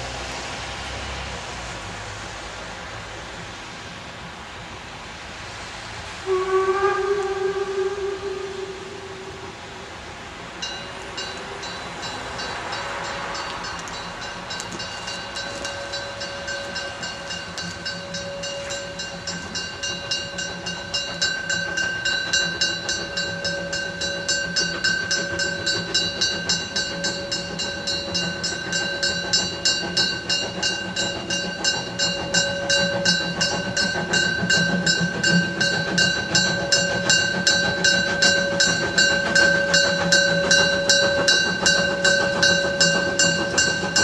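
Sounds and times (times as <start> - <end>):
steam locomotive exhaust beats: 0.0 - 44.0
steady high tone: 10.6 - 44.0.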